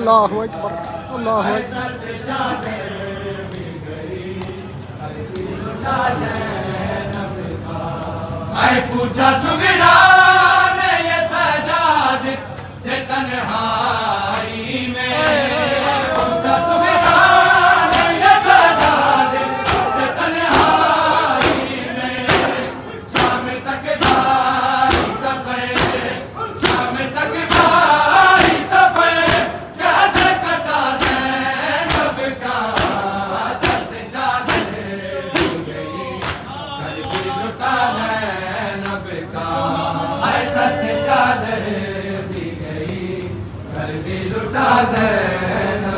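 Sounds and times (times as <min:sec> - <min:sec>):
men chanting in unison: 0:00.7 - 0:45.9
hand slaps on chests: 0:16.1 - 0:16.4, 0:17.9 - 0:24.3, 0:24.9 - 0:26.0, 0:26.6 - 0:26.9, 0:28.4 - 0:29.5, 0:30.1 - 0:30.4, 0:31.0 - 0:33.0, 0:33.6 - 0:34.8, 0:35.4 - 0:37.3.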